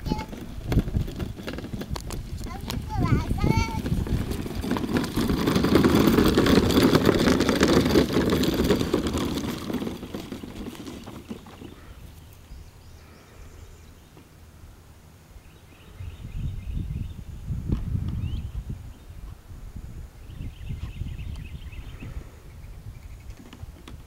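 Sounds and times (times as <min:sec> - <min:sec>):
plastic wheels rumbling over lawn: 0:00.0 - 0:13.2, 0:23.0 - 0:24.0.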